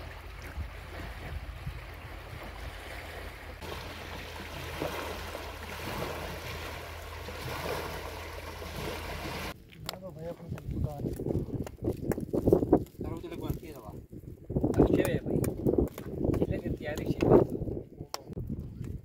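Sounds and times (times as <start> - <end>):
fast-flowing water rushing: 3.5 - 9.6.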